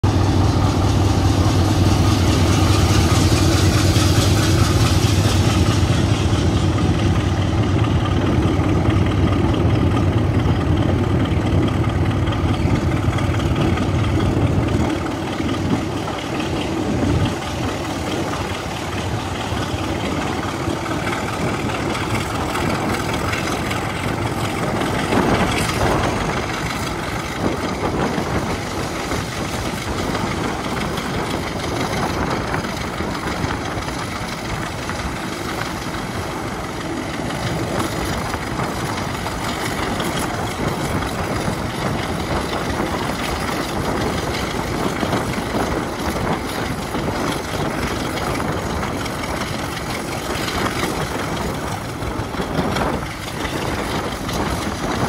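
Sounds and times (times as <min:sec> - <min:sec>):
diesel locomotive engine throbbing: 0:00.0 - 0:55.0.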